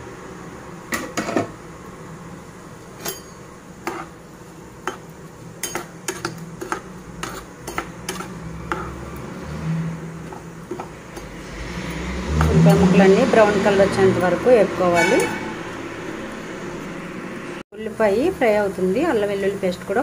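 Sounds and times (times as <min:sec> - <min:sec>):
spatula scraping frying pan: 0:03.0 - 0:04.2, 0:04.8 - 0:13.5, 0:14.9 - 0:15.8.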